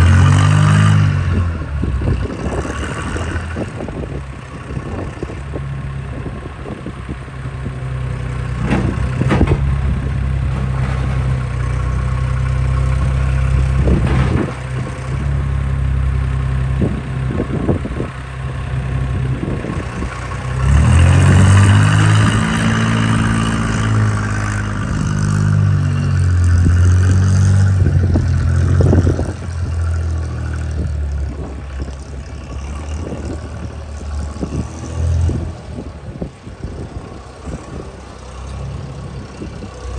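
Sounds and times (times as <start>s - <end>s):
wheel loader engine running: 0.0s - 39.9s
knocks from loader: 8.5s - 12.0s, 13.5s - 15.3s.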